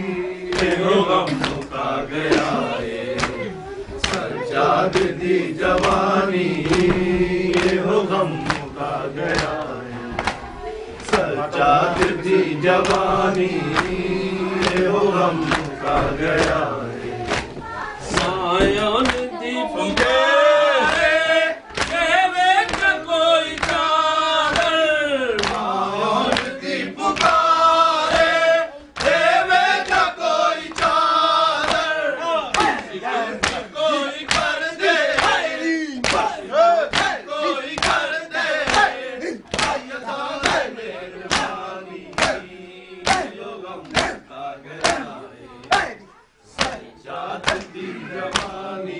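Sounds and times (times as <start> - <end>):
men chanting in chorus: 0.0 - 48.9
chest beating slaps: 36.0 - 37.2, 38.6 - 40.7, 43.0 - 44.2, 46.6 - 46.8, 47.4 - 47.7.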